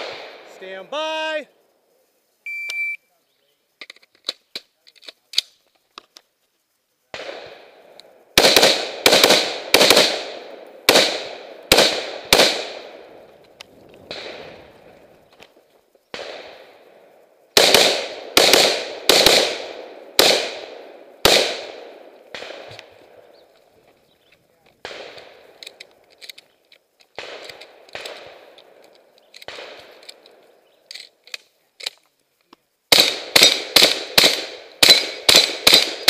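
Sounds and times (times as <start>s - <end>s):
gunshots echoing: 0.0s - 1.4s, 7.1s - 13.2s, 14.0s - 14.9s, 16.1s - 23.3s, 24.8s - 25.8s, 27.2s - 30.4s, 32.9s - 36.0s.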